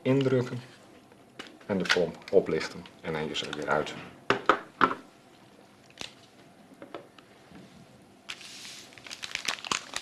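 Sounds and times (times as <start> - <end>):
sharp plastic knocks: 4.3 - 5.0
plastic wrapper rustling: 8.3 - 10.0.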